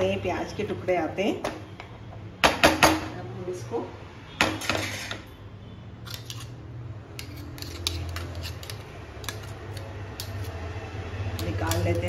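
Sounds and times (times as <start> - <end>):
spoon scraping metal masher: 6.0 - 12.0.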